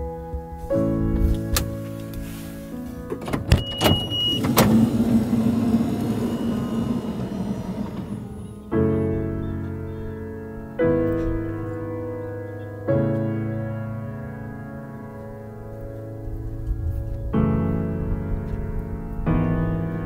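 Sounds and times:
slow piano chords: 0:00.0 - 0:20.0
high beep: 0:03.5 - 0:04.5
mechanical whirring: 0:03.9 - 0:08.7.

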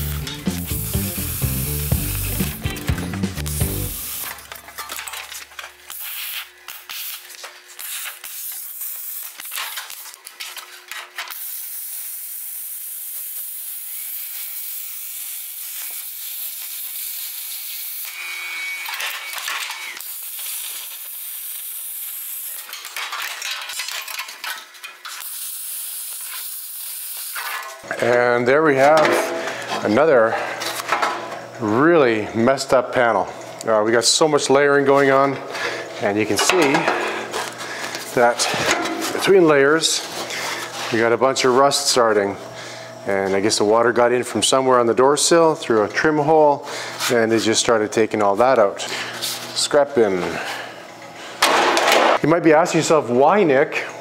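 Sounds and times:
power tool cutting sheet steel: 0:00.0 - 0:02.8, 0:03.4 - 0:04.5, 0:11.2 - 0:23.0, 0:25.1 - 0:27.8.

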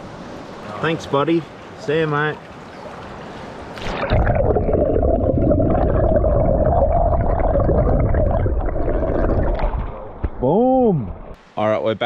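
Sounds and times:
underwater stream rushing: 0:03.4 - 0:11.4.

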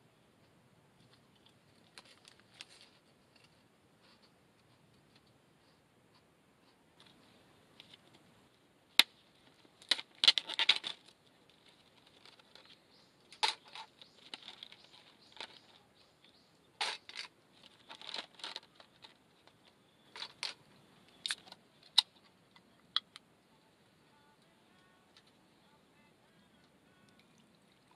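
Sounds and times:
clatter of camp gear: 0:01.0 - 0:05.4, 0:09.0 - 0:15.9, 0:16.8 - 0:23.1.

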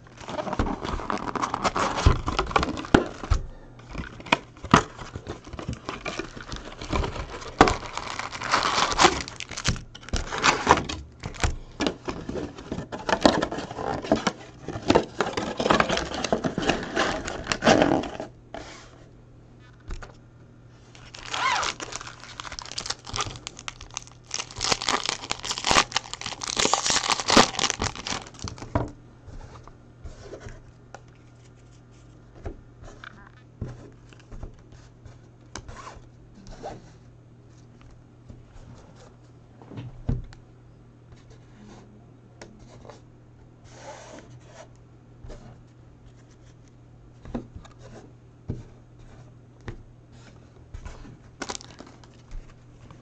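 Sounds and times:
foil packs crinkling: 0:00.0 - 0:03.3, 0:03.9 - 0:18.2, 0:20.9 - 0:28.9, 0:51.4 - 0:53.0.

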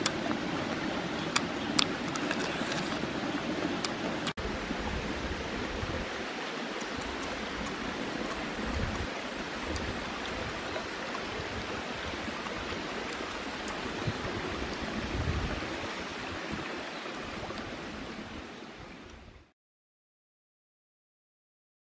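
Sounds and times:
stream running over stones: 0:00.0 - 0:19.4.

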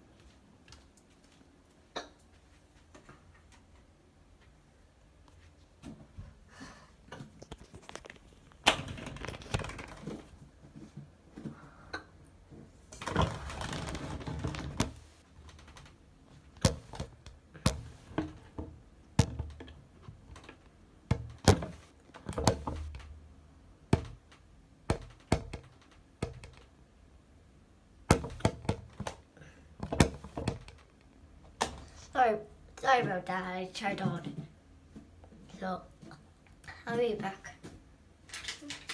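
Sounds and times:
phone being handled and bumped: 0:16.6 - 0:23.1, 0:24.9 - 0:26.7, 0:28.1 - 0:29.2, 0:29.8 - 0:31.0.

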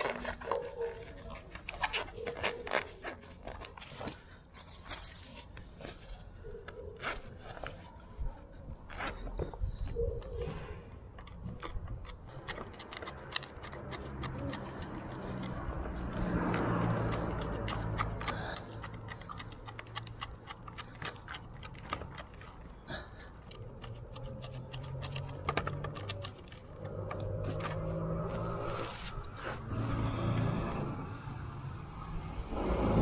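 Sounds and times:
wooden stick scraping putty: 0:00.0 - 0:33.0
low rumble: 0:26.8 - 0:33.0.

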